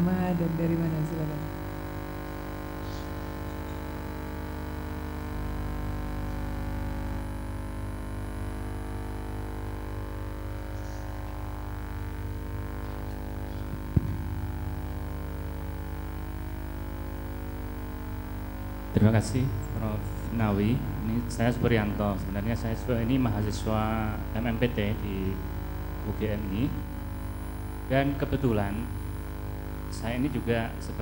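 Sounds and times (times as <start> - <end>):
electrical mains hum: 0.0 - 31.0.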